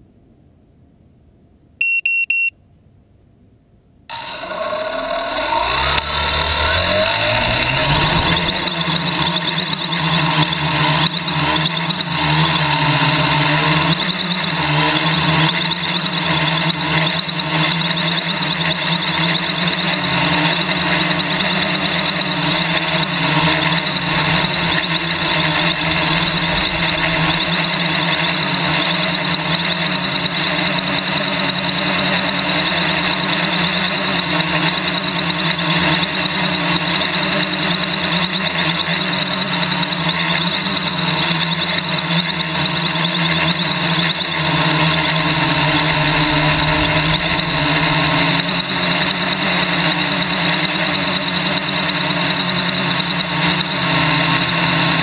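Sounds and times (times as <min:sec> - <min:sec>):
drone motors droning: 0:04.1 - 0:55.0
wind buffeting rumble: 0:23.9 - 0:28.3, 0:44.8 - 0:49.4.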